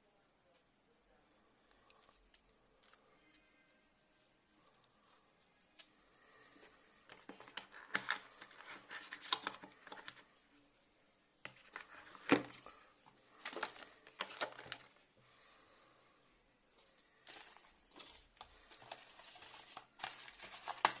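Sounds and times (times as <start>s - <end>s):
paperboard packaging rustling: 7.1s - 10.2s, 11.4s - 15.0s, 17.2s - 21.0s.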